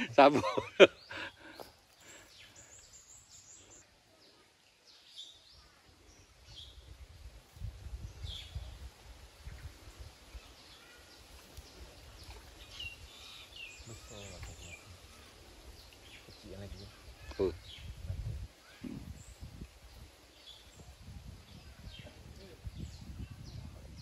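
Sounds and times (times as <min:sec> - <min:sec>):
birds chirping: 0:00.0 - 0:07.0, 0:08.1 - 0:24.0.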